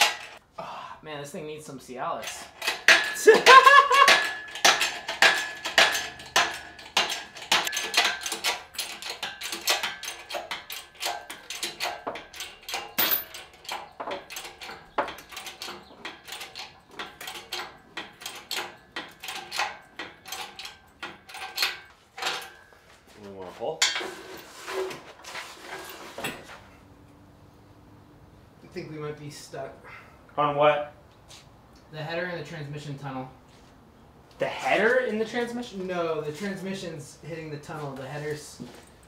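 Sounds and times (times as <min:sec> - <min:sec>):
hoist chain clicking and clanking: 0:00.0 - 0:00.4, 0:02.2 - 0:22.8.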